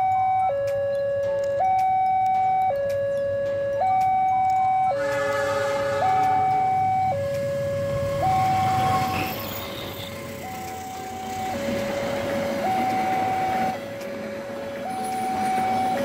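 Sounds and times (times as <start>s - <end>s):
level crossing two-tone alarm: 0.0s - 13.9s, 14.8s - 16.0s
train passing rumble: 4.6s - 16.0s.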